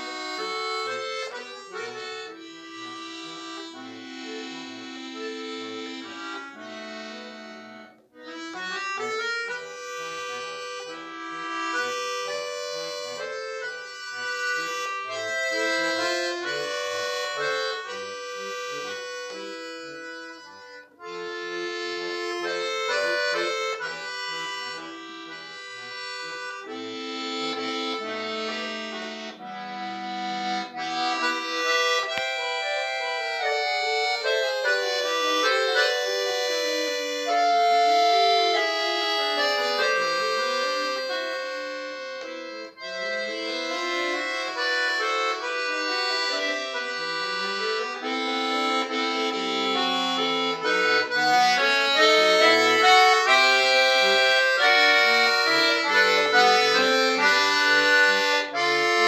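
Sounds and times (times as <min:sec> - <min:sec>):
button accordion playing: 0:00.0 - 0:59.0.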